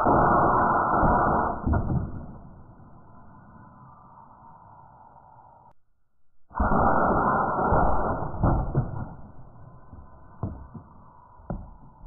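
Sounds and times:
compressed air cannon blast: 6.6s - 9.4s.

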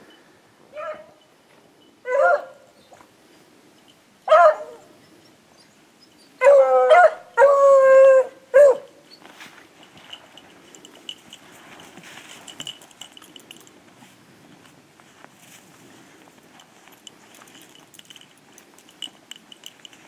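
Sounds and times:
dogs baying: 6.1s - 9.0s.

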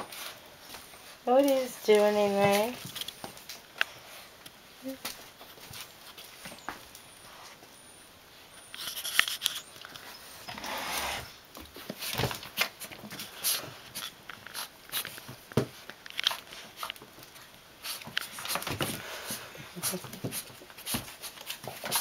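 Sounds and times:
small dogs scrambling: 11.7s - 22.0s.

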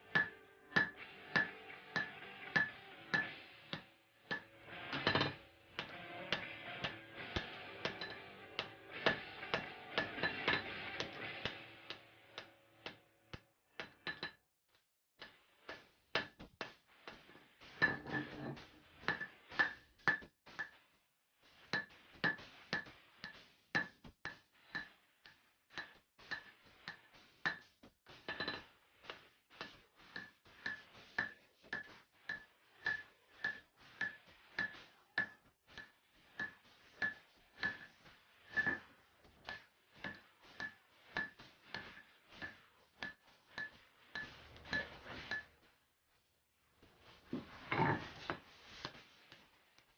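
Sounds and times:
background music: 0.0s - 13.4s
hammer ringing on anvil: 0.1s - 3.4s, 7.4s - 8.3s.

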